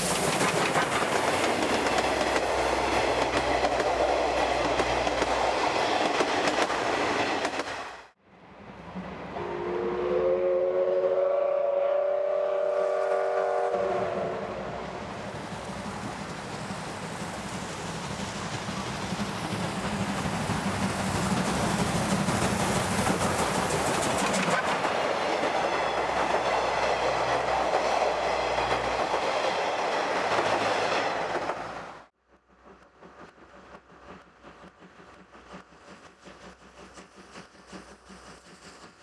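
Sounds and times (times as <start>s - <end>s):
train wheels clattering over rail joints: 0.0s - 7.8s
steam locomotive exhaust: 8.6s - 31.0s, 32.2s - 39.0s.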